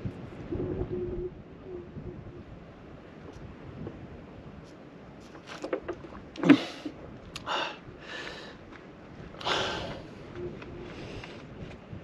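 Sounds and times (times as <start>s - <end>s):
person breathing out heavily: 7.4s - 8.6s, 9.4s - 10.1s.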